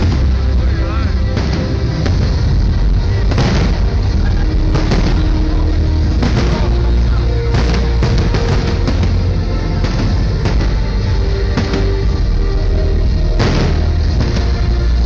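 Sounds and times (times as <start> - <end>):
fireworks bursting bangs: 0.0 - 15.0
loud bass-heavy music: 0.0 - 15.0.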